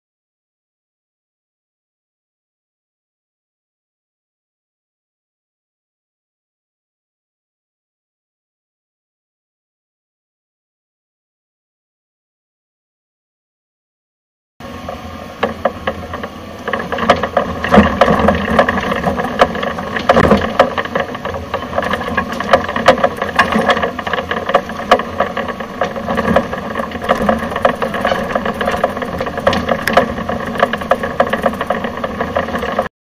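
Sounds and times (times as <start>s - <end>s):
excavator diesel engine under load: 14.6s - 32.9s
sharp knocks and rattles on concrete: 15.4s - 32.9s.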